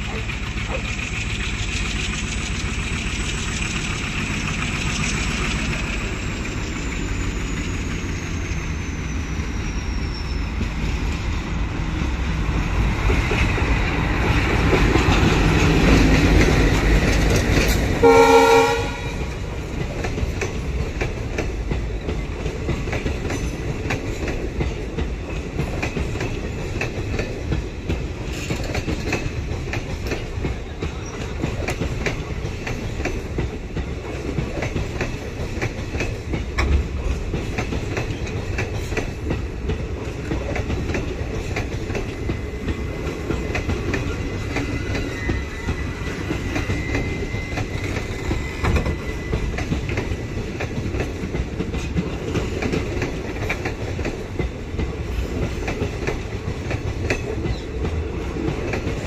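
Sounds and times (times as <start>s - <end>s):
wheels clacking over rail joints: 0.0s - 8.2s, 10.4s - 59.0s
diesel locomotive engine: 0.0s - 59.0s
train horn blast: 18.0s - 19.4s.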